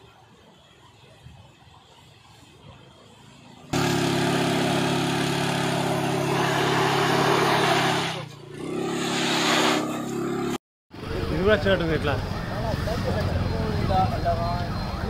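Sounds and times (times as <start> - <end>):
scooter engine running: 3.7 - 10.6.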